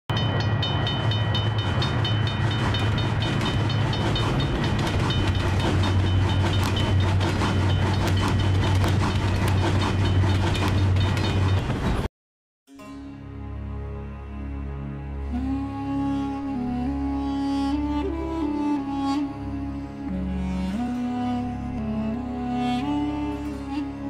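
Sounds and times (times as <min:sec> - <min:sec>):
crossing warning bell ringing: 0:00.1 - 0:09.4
train rumbling past: 0:00.1 - 0:12.1
train wheel clicks: 0:00.2 - 0:12.1.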